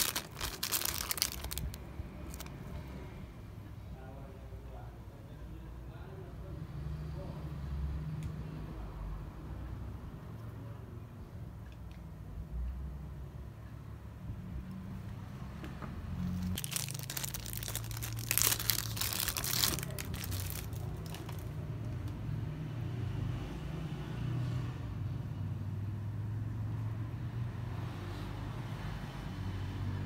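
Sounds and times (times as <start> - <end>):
packaging crinkling: 0.0 - 2.5, 16.2 - 21.6.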